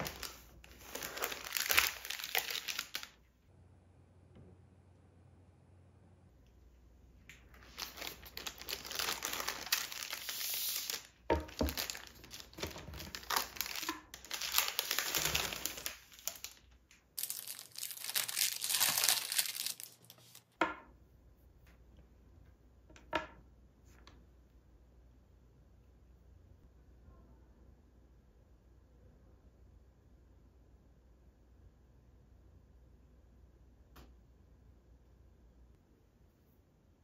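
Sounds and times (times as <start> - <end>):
tissue paper crinkling: 0.0 - 3.2, 7.5 - 20.4.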